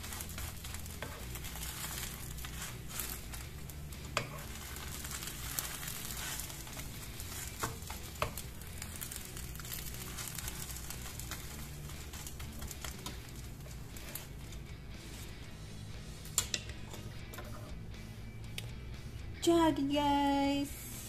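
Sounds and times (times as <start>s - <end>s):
egg sizzling in frying pan: 0.0s - 17.6s.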